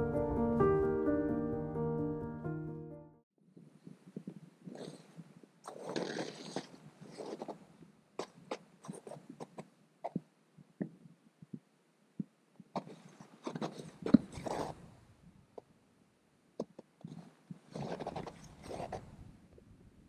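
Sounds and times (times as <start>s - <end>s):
footsteps crunching snow: 5.7s - 7.6s.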